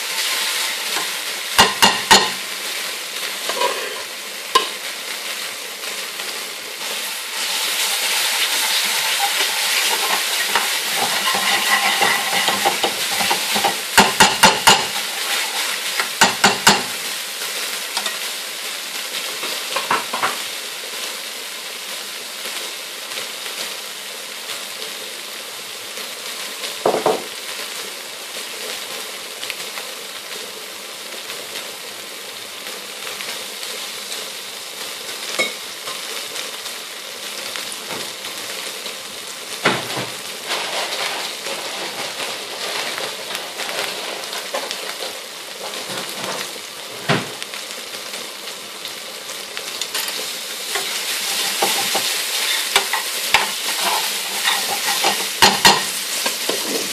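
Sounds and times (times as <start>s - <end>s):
oil sizzling in a pan: 0.0s - 56.9s
metal spoon knocking on pan: 1.6s - 2.4s, 11.2s - 14.9s, 16.2s - 16.9s.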